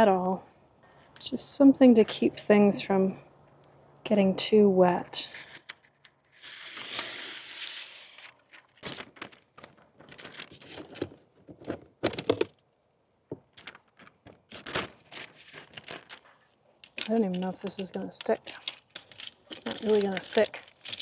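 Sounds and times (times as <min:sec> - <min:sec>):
contact paper rustling: 0:05.3 - 0:12.5, 0:13.3 - 0:21.0
paper crinkling: 0:05.4 - 0:12.4, 0:13.4 - 0:21.0.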